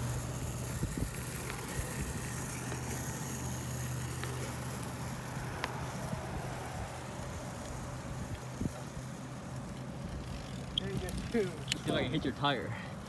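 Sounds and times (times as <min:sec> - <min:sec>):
bicycle tyres humming on asphalt: 0:00.0 - 0:13.0
faint ticks: 0:05.5 - 0:05.8.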